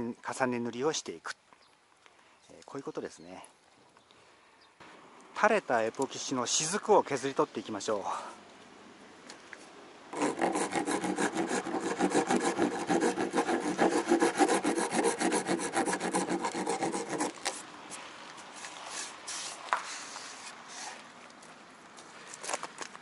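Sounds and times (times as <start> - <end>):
metal blade scraping epoxy: 10.2 - 17.6.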